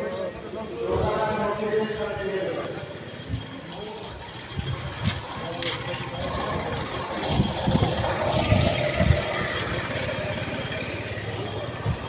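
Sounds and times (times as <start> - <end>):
vehicle engine running: 3.1 - 12.0.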